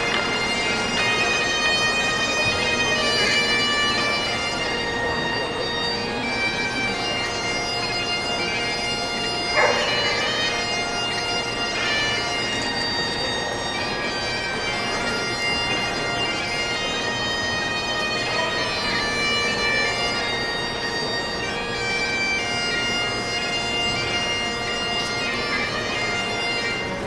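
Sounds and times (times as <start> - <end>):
bagpipes playing: 0.0 - 27.0.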